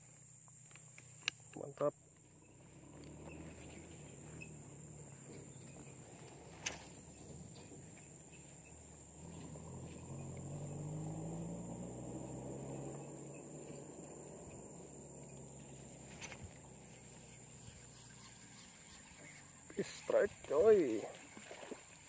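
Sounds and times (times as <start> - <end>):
high-pitched insect chorus: 0.0 - 22.0.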